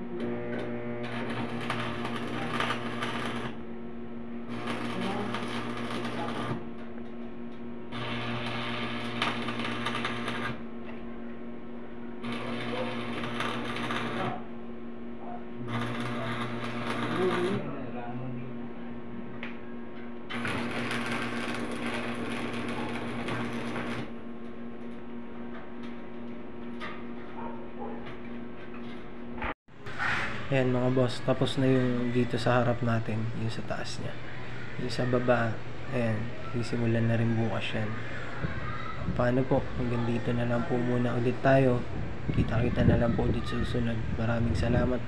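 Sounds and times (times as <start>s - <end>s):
low electrical buzz: 0.0s - 45.0s
steady low hum: 0.0s - 45.0s
welding arc crackling: 0.2s - 3.6s, 4.4s - 6.7s, 7.9s - 10.7s, 12.2s - 14.5s, 15.6s - 17.6s, 20.3s - 24.2s.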